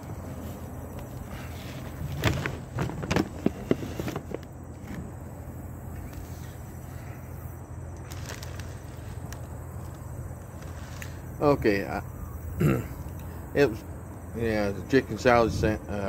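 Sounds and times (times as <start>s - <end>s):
steady low hum: 0.0s - 16.0s
paper wrapper crinkling: 8.0s - 11.2s.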